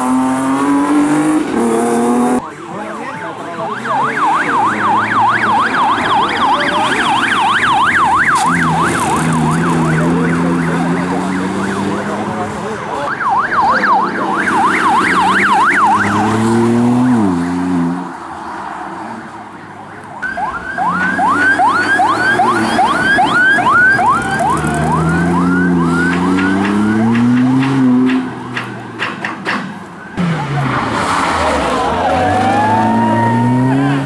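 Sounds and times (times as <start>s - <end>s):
vehicle engine revving: 0.0s - 2.4s, 14.5s - 18.1s, 21.1s - 28.4s, 30.2s - 34.0s
electronic siren wailing and yelping: 3.8s - 12.1s, 13.1s - 16.3s, 20.2s - 27.1s, 31.6s - 34.0s.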